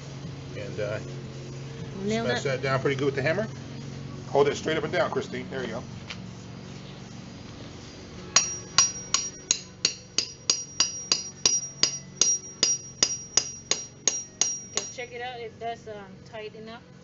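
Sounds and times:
hammer striking metal tool: 8.4 - 15.1.

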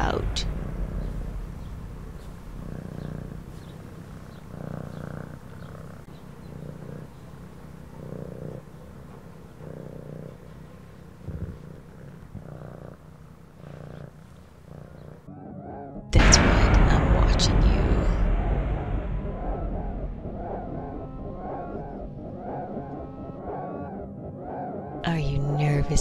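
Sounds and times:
cat purring: 0.0 - 15.3.

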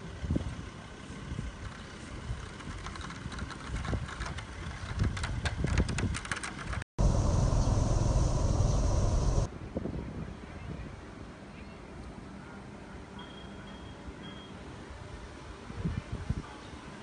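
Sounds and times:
wind buffeting microphone: 2.2 - 10.3.

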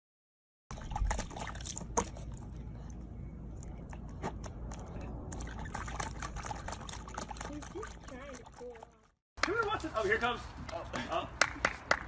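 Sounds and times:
steady low rumble: 0.7 - 7.2
puppy splashing water: 0.7 - 9.9.

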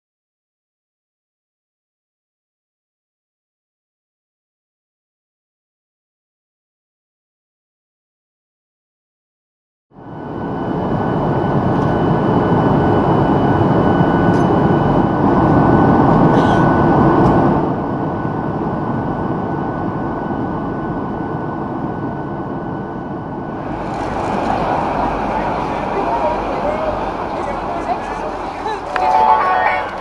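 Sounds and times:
faint high whine: 10.0 - 30.0.

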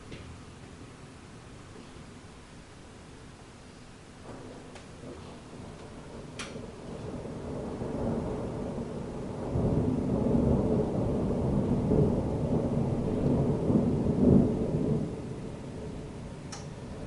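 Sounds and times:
thunder rumbling: 4.1 - 17.0.

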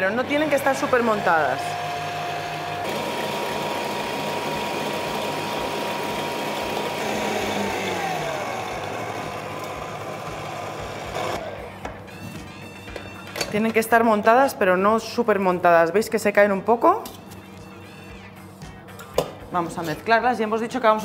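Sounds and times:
stand mixer whisking: 0.2 - 11.5.

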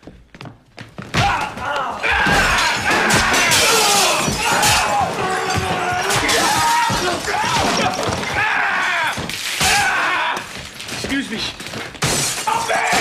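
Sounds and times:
things thudding: 0.8 - 13.0
smashing and crashing: 1.0 - 13.0
voices crying out: 1.2 - 10.6.

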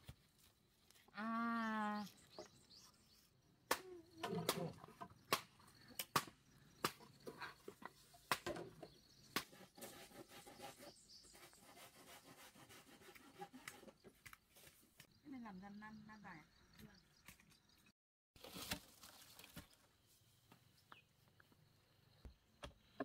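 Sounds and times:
machete chopping bamboo: 3.7 - 7.0, 8.2 - 8.7, 9.3 - 9.6.

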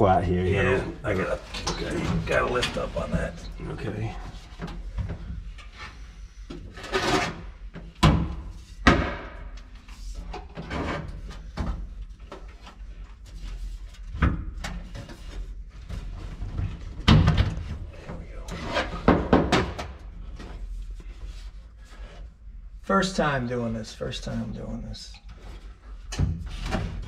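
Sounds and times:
knocks and clunks on sheet metal: 7.2 - 9.5, 18.8 - 20.0.

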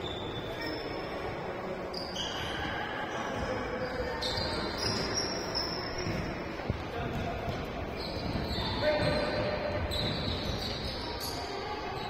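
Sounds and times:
shoes squeaking on floor: 0.0 - 12.0.

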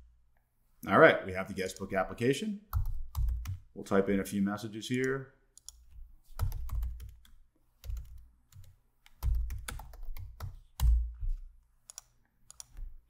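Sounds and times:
typing on computer keyboard: 2.7 - 3.6, 6.4 - 11.1, 11.9 - 12.9.

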